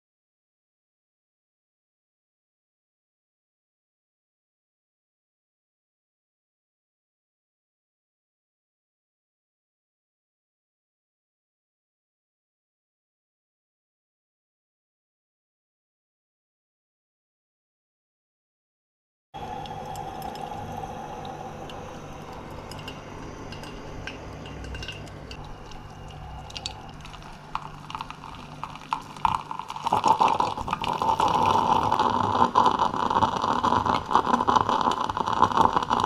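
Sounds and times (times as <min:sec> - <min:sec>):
coffee pot sputtering and gurgling: 0:19.4 - 0:36.0
coffee pouring into mug: 0:19.4 - 0:36.0
faint steady whine: 0:19.4 - 0:36.0.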